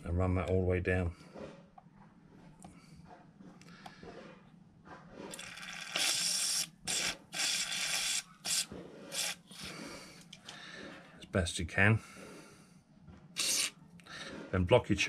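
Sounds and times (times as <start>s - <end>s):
aerosol spray hissing: 5.7s - 9.7s, 13.4s - 13.7s.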